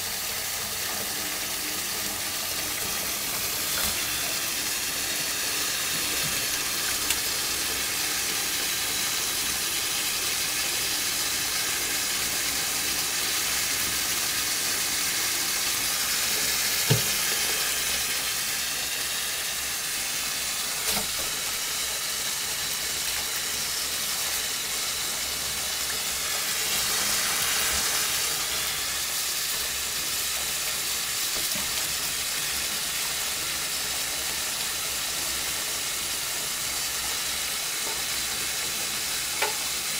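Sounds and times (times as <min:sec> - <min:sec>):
tap running into metal sink: 0:00.8 - 0:09.2, 0:16.0 - 0:18.2, 0:20.6 - 0:21.6, 0:39.3 - 0:39.9.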